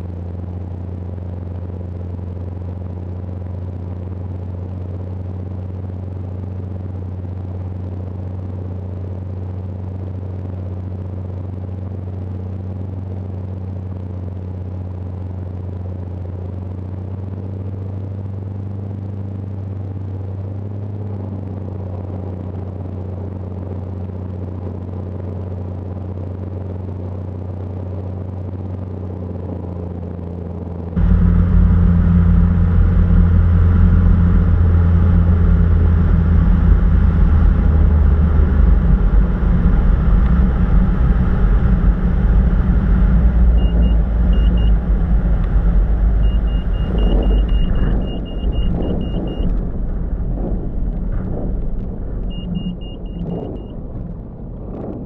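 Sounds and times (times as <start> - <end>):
light aircraft engine droning: 0.0 - 55.0
short high warning beeps: 46.2 - 49.5.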